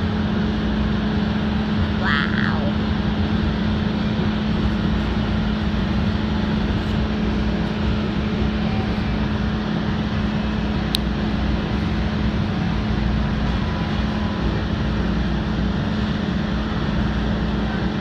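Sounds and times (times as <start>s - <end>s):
rail car wheel and track noise: 0.0s - 18.0s
steady low hum: 0.0s - 18.0s.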